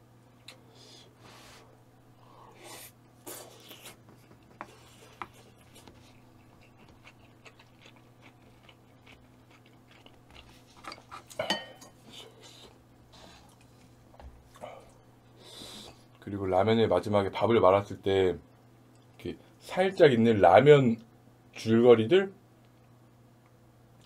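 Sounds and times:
chewing and mouth sounds: 2.8 - 11.4.

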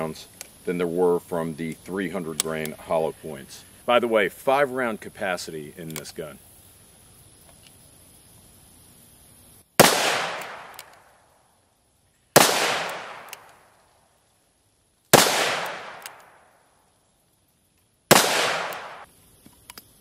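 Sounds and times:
revolver shots echoing: 9.8 - 10.9, 12.4 - 13.4, 15.2 - 16.4, 18.1 - 19.0.

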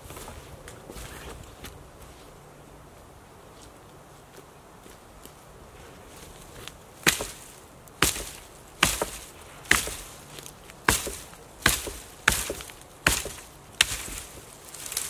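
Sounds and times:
hatchet chopping wood: 7.0 - 15.0.

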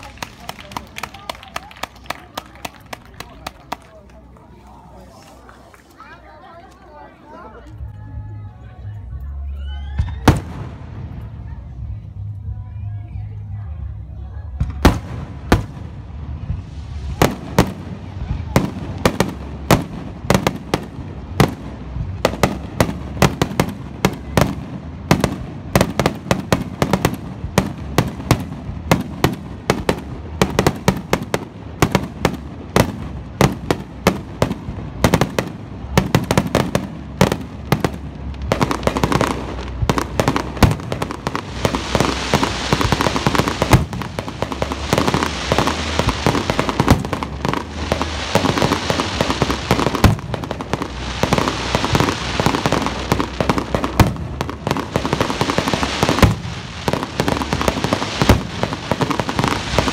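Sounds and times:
dense crackling hiss: 0.0 - 59.9
fireworks bangs: 10.0 - 11.5, 14.5 - 59.9.

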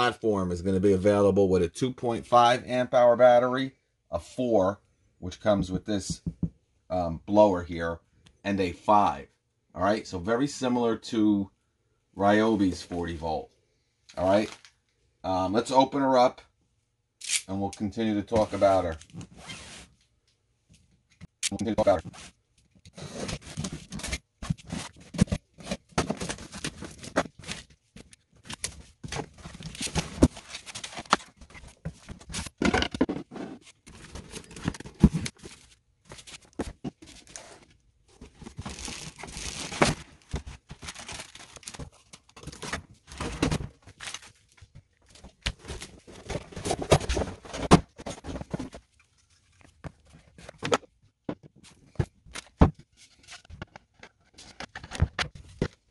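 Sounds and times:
cardboard tearing and rustling: 23.0 - 27.7, 28.4 - 37.6, 38.3 - 44.4
plastic wrap crinkling: 38.5 - 42.1.

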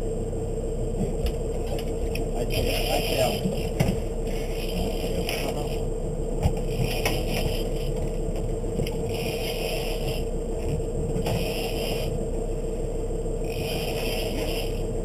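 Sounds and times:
boat engine humming: 0.0 - 15.0
fishing reel whirring: 6.7 - 8.0, 9.1 - 10.3, 11.2 - 12.2, 13.4 - 15.0.

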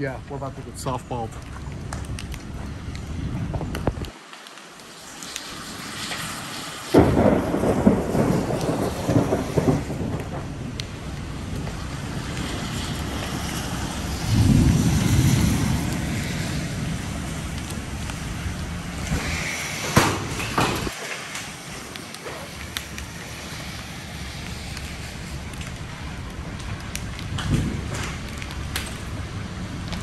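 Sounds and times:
steady rain: 0.0 - 30.0
wind noise on microphone: 1.4 - 4.1, 5.5 - 20.9, 22.5 - 30.0
thunder rumbling: 5.8 - 30.0
sharp thunder crack: 6.9 - 21.0, 27.3 - 28.2.

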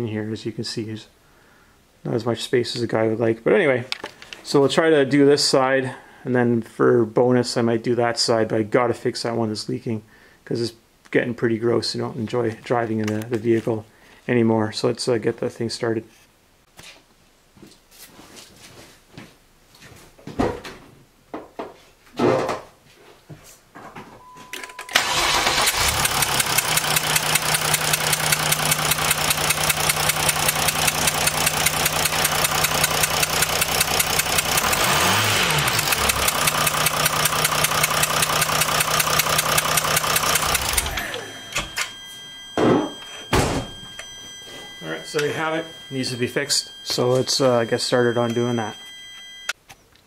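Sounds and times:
short beep: 24.2 - 25.0, 37.2 - 49.6
diesel engine cranking and idling: 24.9 - 42.6.

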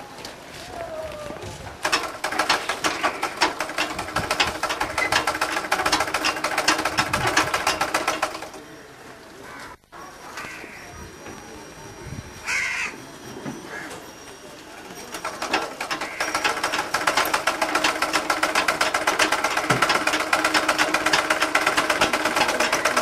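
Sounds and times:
sewing machine clattering: 1.8 - 8.6, 14.9 - 23.0.

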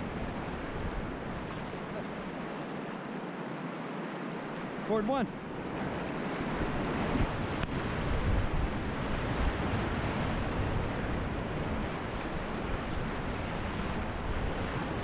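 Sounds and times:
wind buffeting microphone: 0.0 - 2.4, 5.4 - 15.0
rushing whitewater: 0.0 - 15.0.

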